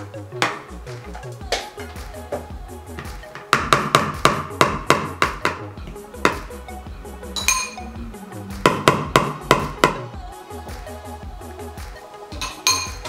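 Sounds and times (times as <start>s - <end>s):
metallic ping: 7.4s - 7.9s.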